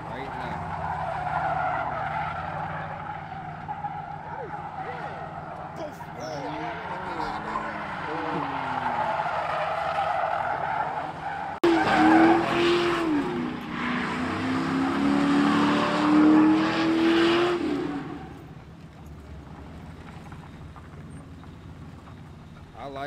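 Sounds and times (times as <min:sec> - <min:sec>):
tyres squealing on asphalt: 0:00.0 - 0:23.0
car engine revving hard: 0:11.1 - 0:18.2.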